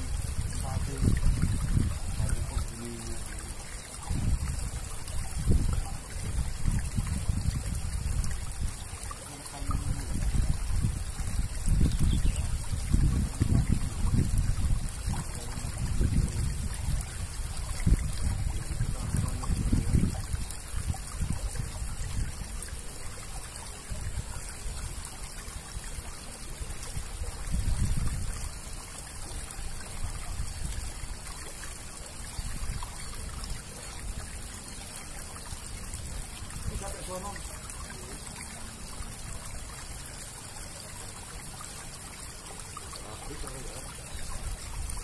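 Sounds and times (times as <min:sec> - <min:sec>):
low rumbling gusts: 0:00.0 - 0:02.5
water trickling through culvert: 0:00.0 - 0:45.0.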